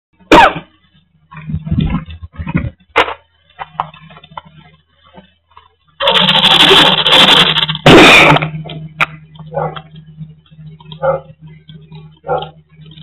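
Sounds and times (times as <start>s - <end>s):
microphone handling noise: 1.4s - 2.8s.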